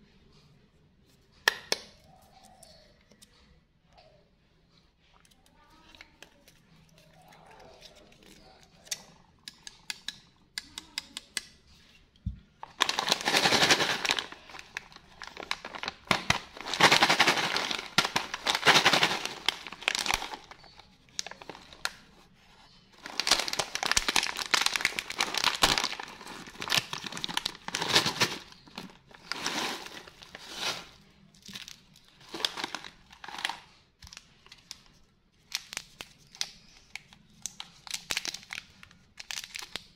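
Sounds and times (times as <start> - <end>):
plastic snack bag crinkling: 12.6 - 39.9.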